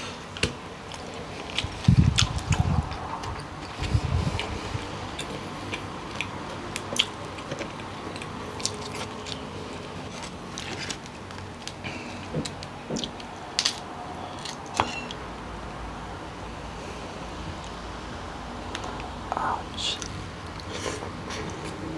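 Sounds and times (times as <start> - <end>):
chewing: 0.9 - 15.2.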